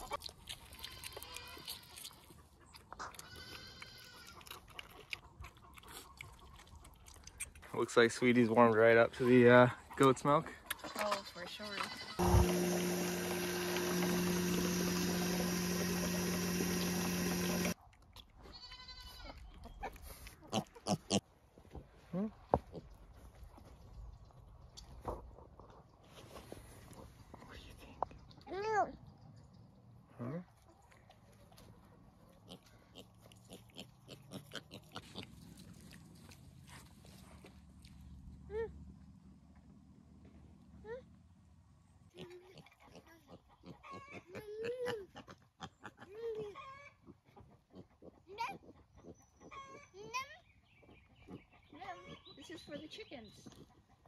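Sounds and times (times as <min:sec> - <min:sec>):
cream separator humming: 0:12.2 - 0:17.8
piglet grunting: 0:32.5 - 0:36.3, 0:42.1 - 0:46.8.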